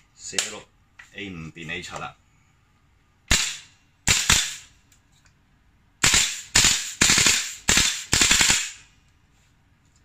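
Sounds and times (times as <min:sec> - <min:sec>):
airsoft rifle shots: 0:03.3 - 0:04.7, 0:06.0 - 0:08.8.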